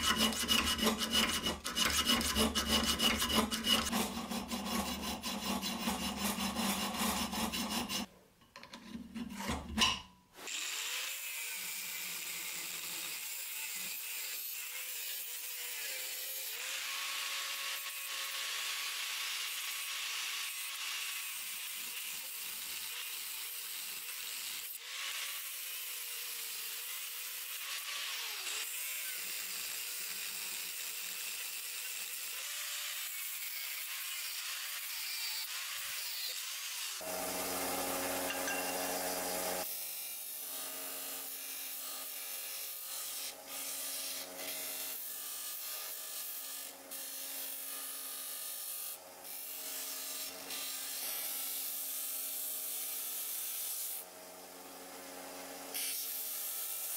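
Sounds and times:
abrasive wheel grinding steel blade: 0.0 - 8.1, 37.0 - 39.7
motor humming loudly: 37.0 - 39.6.

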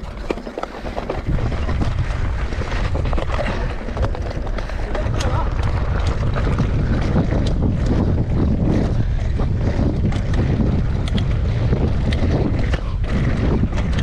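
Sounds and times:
bike clicks and rattles: 0.0 - 14.0
wind buffeting microphone: 0.0 - 14.0.

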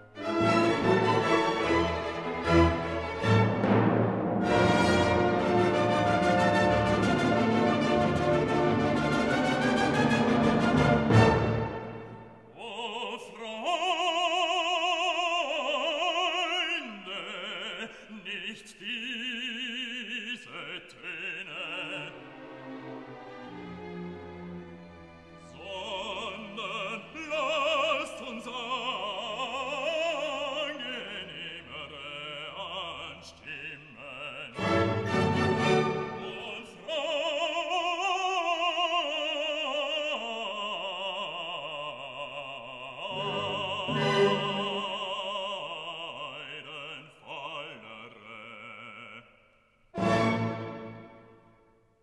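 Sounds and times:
orchestra playing: 0.1 - 12.5, 21.9 - 27.3, 34.6 - 36.7, 43.1 - 45.2, 50.0 - 51.6
opera singer with vibrato: 12.5 - 22.3, 25.4 - 49.4.

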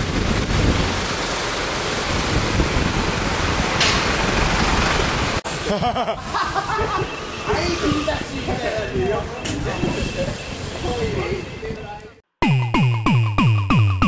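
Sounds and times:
wind noise on microphone: 0.0 - 5.4, 6.8 - 12.0
people's voices: 6.8 - 12.2.

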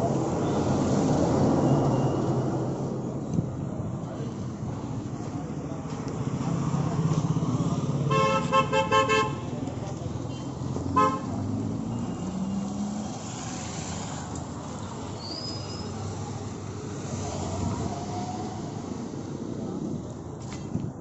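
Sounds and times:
motorcycle horn beeping: 8.1 - 9.5, 10.3 - 11.3.

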